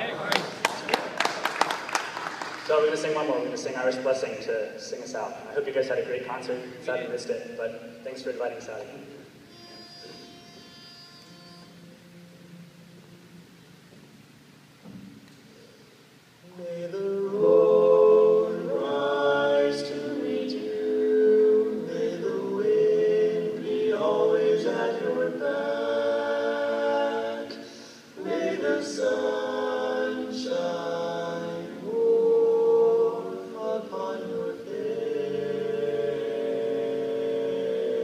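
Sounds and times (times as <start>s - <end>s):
male vocal quartet singing: 16.4s - 38.0s.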